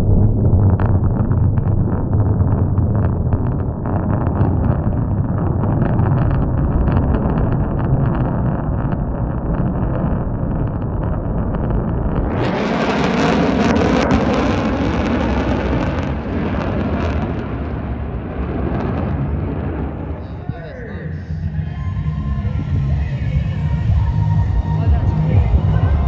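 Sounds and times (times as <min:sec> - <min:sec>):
wind buffeting microphone: 0:00.0 - 0:26.0
aircraft engine roar: 0:10.2 - 0:26.0.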